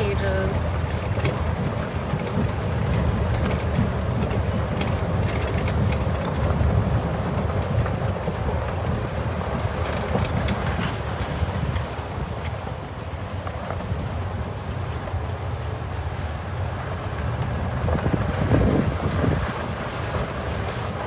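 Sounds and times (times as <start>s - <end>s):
small rattles and clicks: 0.0s - 12.6s
golf cart rumbling: 0.0s - 21.0s
wind buffeting microphone: 0.0s - 21.0s.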